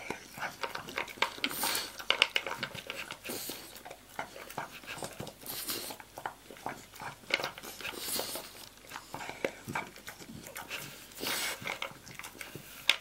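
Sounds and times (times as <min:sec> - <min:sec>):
teeth clicking against plastic bowl: 0:00.0 - 0:05.4
dog crunching food: 0:00.0 - 0:13.0
dog breathing hiss: 0:01.4 - 0:02.0, 0:03.1 - 0:03.8, 0:04.6 - 0:06.0, 0:07.7 - 0:09.4, 0:10.7 - 0:11.8.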